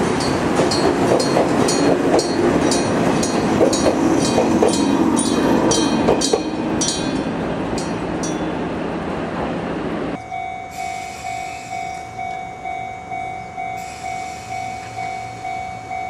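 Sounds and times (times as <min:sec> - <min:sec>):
train wheels clattering over rails: 0:00.0 - 0:08.7.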